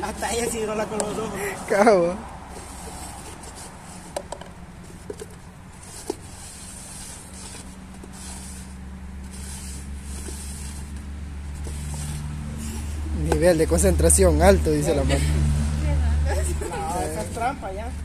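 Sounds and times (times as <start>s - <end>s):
vehicle engine hum: 0.0s - 18.0s
cups sliding on wooden table: 11.6s - 13.0s.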